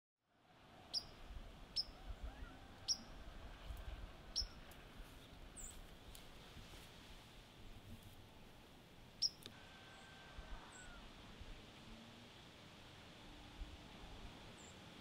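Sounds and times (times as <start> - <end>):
songbird chip notes: 9.2 - 9.5
faint high bird call: 9.2 - 11.1.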